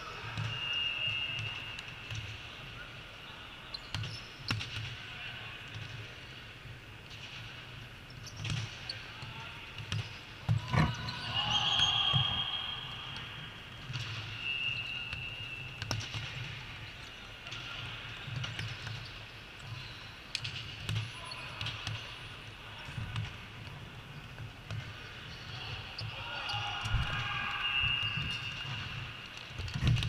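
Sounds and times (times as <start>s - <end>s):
shoes squeaking on court: 9.8s - 12.5s.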